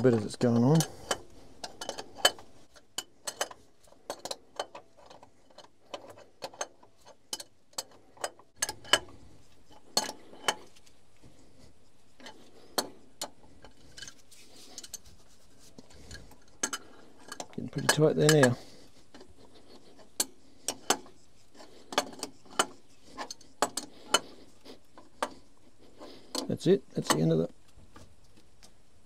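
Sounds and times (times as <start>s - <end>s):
metallic clicks and clinks: 0.0s - 9.1s, 15.9s - 19.3s.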